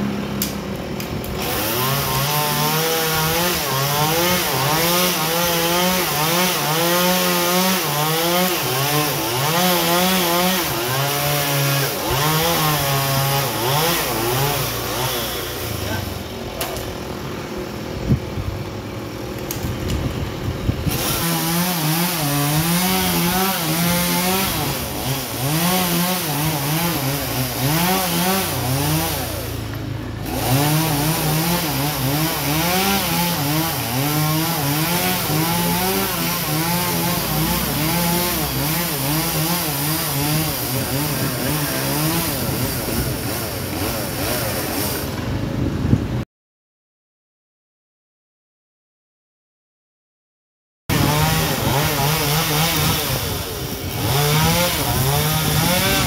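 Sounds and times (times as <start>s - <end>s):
chainsaw cutting wood: 0.0s - 45.6s, 50.9s - 56.0s.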